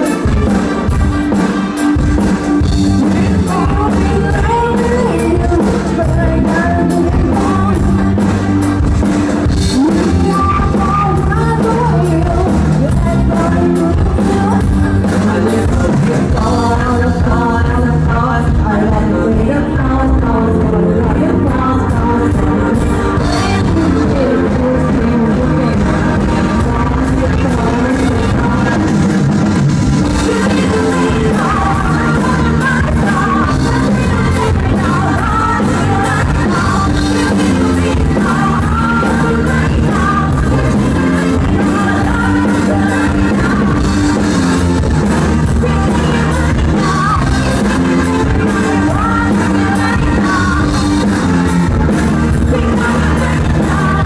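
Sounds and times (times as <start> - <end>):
steady drum beat: 0.0 - 17.4
live pop band: 0.0 - 54.0
woman singing lead: 0.0 - 54.0.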